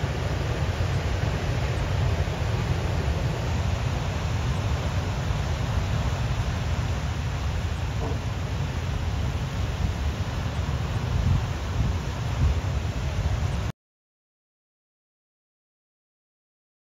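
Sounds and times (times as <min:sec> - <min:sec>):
heavy surf on boulder beach: 0:00.0 - 0:13.7.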